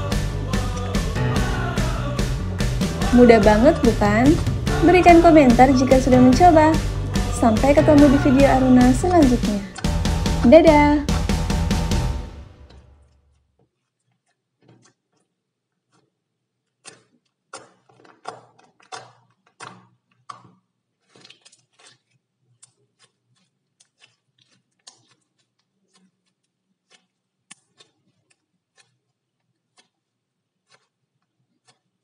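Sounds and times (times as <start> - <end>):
slime squeezed by hand: 16.7 - 30.0.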